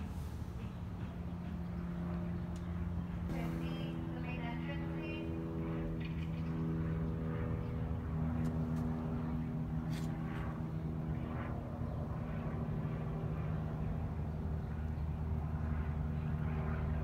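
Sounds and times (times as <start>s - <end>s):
motor humming: 2.5s - 7.0s.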